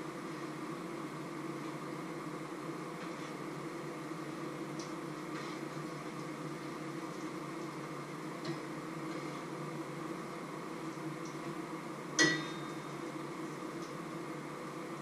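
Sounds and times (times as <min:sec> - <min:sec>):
background hiss and hum: 0:00.0 - 0:15.0
light tick: 0:04.8 - 0:05.0.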